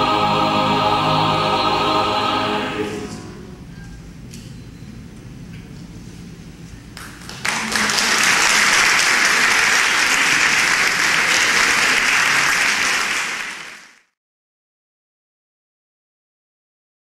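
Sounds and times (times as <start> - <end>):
audience applause: 7.0 - 14.1.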